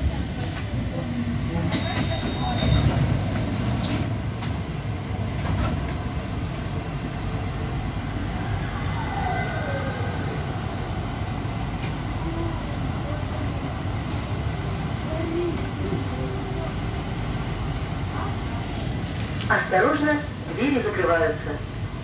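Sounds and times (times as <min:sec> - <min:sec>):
electric train rumble: 0:00.0 - 0:22.0.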